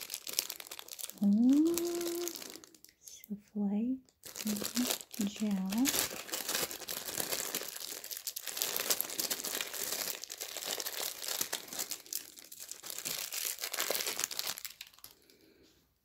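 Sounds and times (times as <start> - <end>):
plastic wrap crinkling and tearing: 0.0 - 3.2, 4.1 - 15.6.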